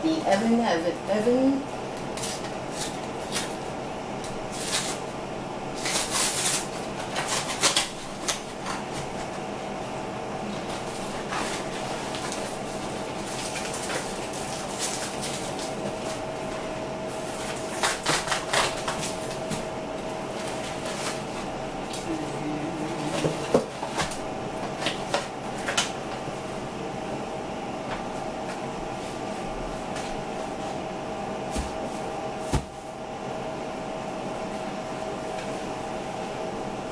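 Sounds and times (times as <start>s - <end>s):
steady background hum: 0.0s - 36.9s
cardboard and plastic crackling: 5.8s - 9.4s, 10.5s - 19.7s.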